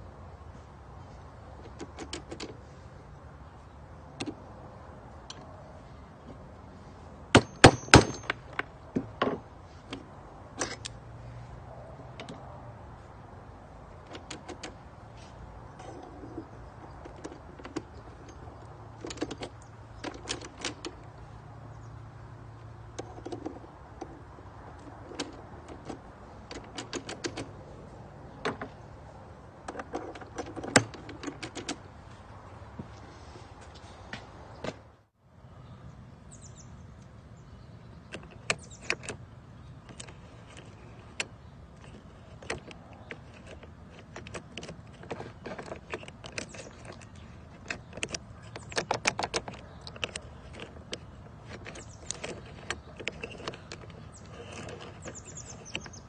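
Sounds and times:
metal clicks and scrapes of lock: 1.6 - 2.6, 7.4 - 11.0, 13.9 - 21.1, 22.9 - 27.6, 29.6 - 31.8, 38.1 - 56.0.

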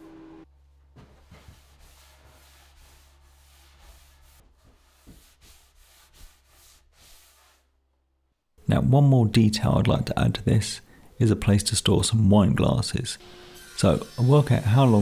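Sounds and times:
cloth rag rubbing wood: 0.8 - 7.7.

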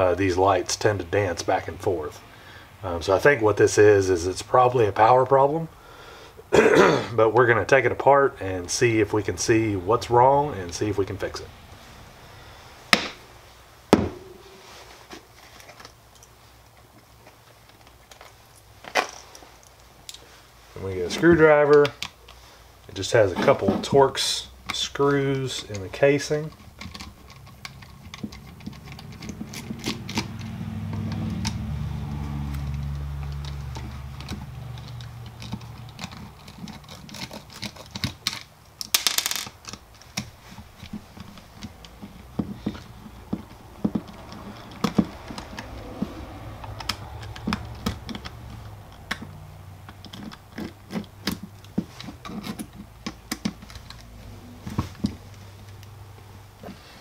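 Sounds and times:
low hum: 13.9 - 15.1
tool handled on a bench: 32.6 - 55.9
screwdriver clicks and taps: 46.6 - 54.0.

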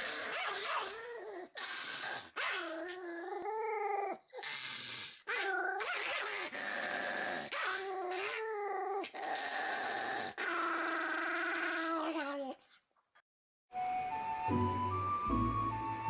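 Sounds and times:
dog growling and snarling: 0.0 - 12.8.

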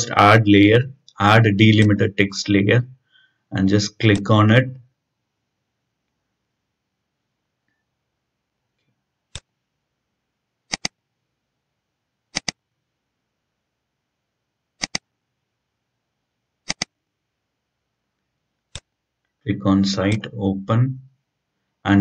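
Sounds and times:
computer mouse clicking: 10.7 - 11.0, 12.3 - 12.6, 14.8 - 15.1, 16.6 - 17.0.

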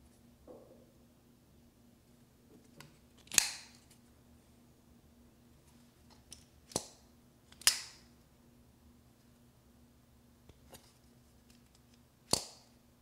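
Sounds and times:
folding knife snapping open: 2.8 - 3.8, 7.5 - 8.0, 12.3 - 12.7.

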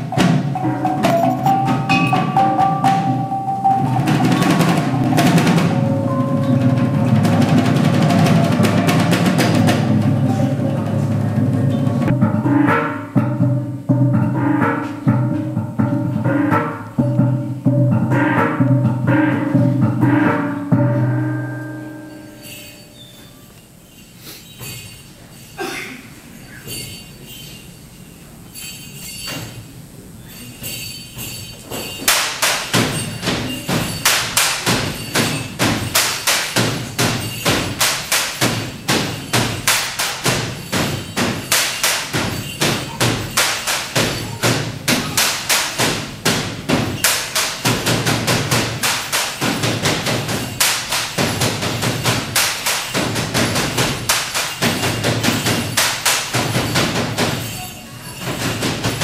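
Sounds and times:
bamboo poles clapping and knocking: 32.0 - 57.4.

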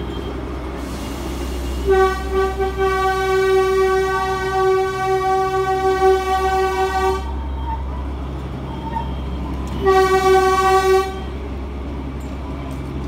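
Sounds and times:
train running rumble: 0.0 - 13.0
train horn blast: 1.8 - 7.4, 9.8 - 11.4.

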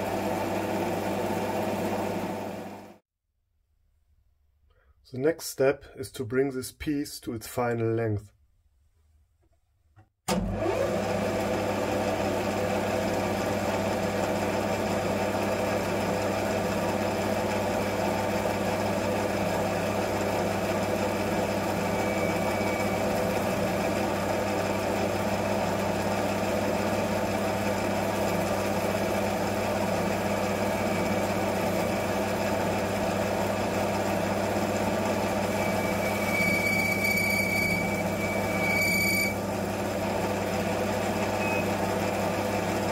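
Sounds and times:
metal lathe running: 19.0 - 42.8.

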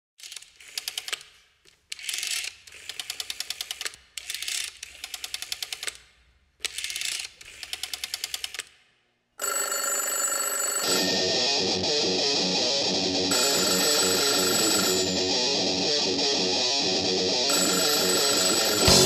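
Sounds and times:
held multi-pitch tone: 10.8 - 19.0.

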